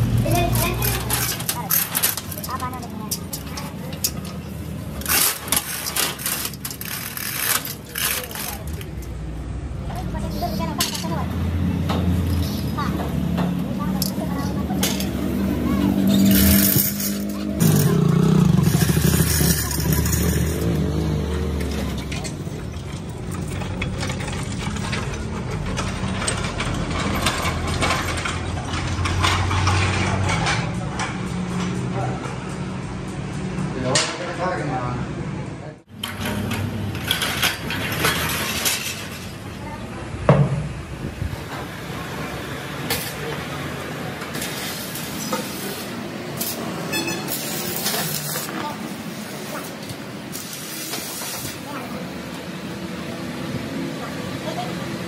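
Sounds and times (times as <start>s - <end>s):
workshop low rumble: 0.0s - 55.0s.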